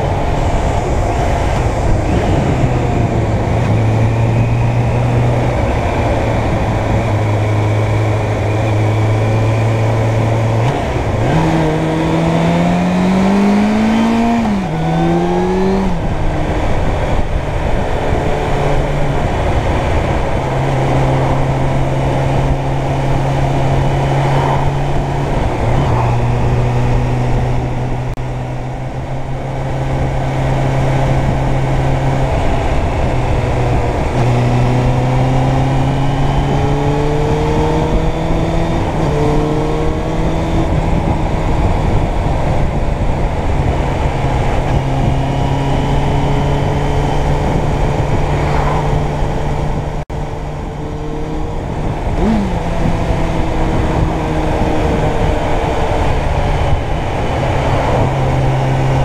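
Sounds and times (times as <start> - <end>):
motorcycle engine revving: 0.0 - 59.0
wind rush: 0.0 - 59.0.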